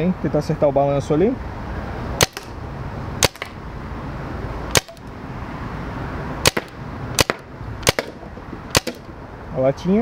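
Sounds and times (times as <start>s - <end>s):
paintball marker firing pops: 2.2s - 2.5s, 3.2s - 3.6s, 6.4s - 9.1s.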